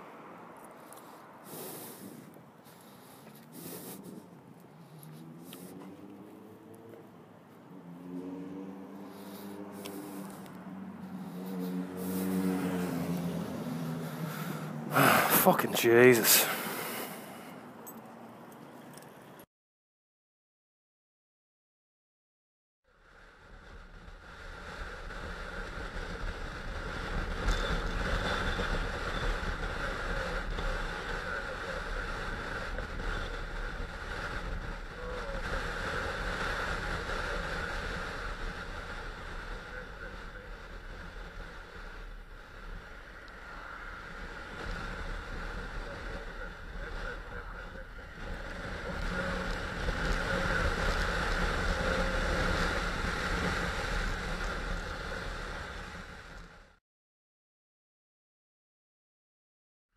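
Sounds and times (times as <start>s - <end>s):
wind rushing over microphone: 1.3s - 6.8s, 23.4s - 56.6s
motorcycle engine running: 8.9s - 15.1s, 43.9s - 56.1s.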